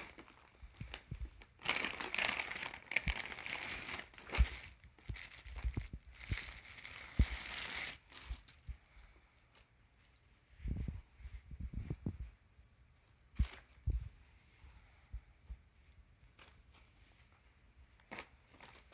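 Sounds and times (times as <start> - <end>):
plastic bags crinkling: 0.0 - 8.6, 18.0 - 18.9.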